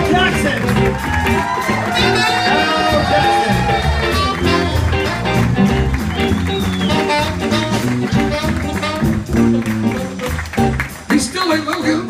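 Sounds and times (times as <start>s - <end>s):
electric guitar: 0.0s - 11.1s
live band playing upbeat music: 0.0s - 12.0s.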